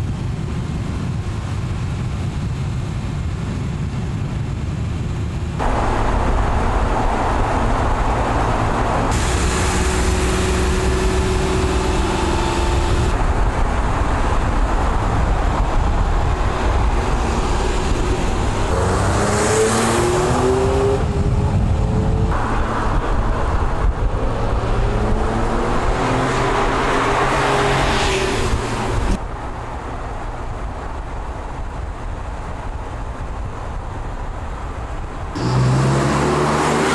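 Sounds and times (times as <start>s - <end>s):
tyre and wind noise: 0.0s - 35.7s
car engine accelerating through upshifts: 5.6s - 13.2s, 18.7s - 22.8s, 35.4s - 36.9s.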